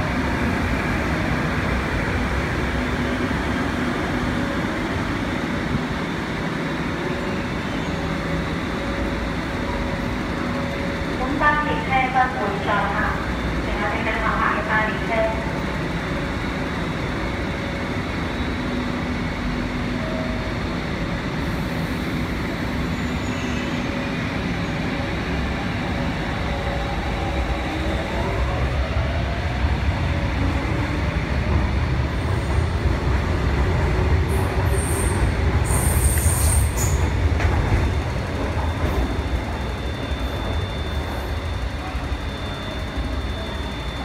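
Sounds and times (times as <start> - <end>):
train wheels rumbling on rail: 0.0 - 44.0.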